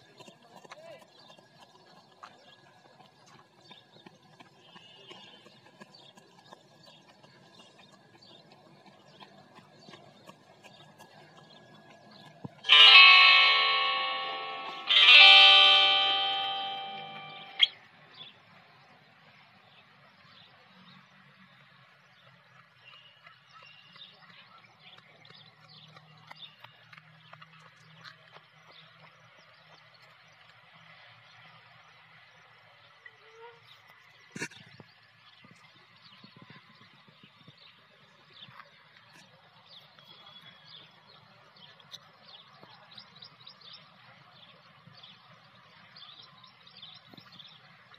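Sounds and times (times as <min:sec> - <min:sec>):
small birds chirping: 0:00.0 - 0:12.8, 0:19.7 - 0:30.8, 0:31.4 - 0:47.9
outdoor background noise: 0:00.0 - 0:47.9
faint high chirps: 0:12.7 - 0:17.8.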